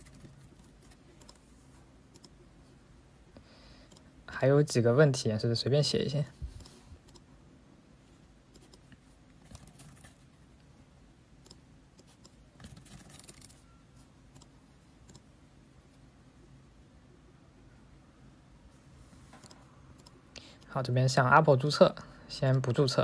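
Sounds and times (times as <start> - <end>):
keyboard typing clicks: 0.0 - 1.4, 2.1 - 2.4, 11.4 - 15.3, 19.4 - 20.2.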